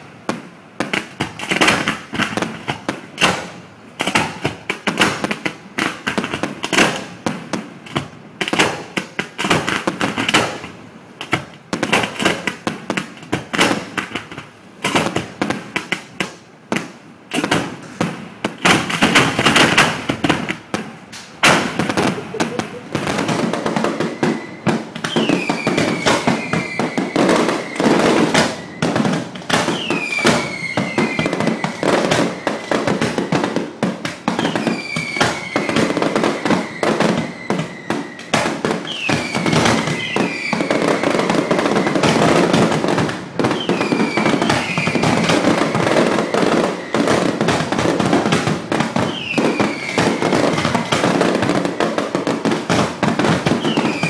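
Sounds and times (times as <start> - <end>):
firecrackers crackling: 0.0 - 54.0
firework bangs: 0.0 - 54.0
falling firework whistle: 21.2 - 48.0, 48.9 - 52.4, 53.5 - 54.0.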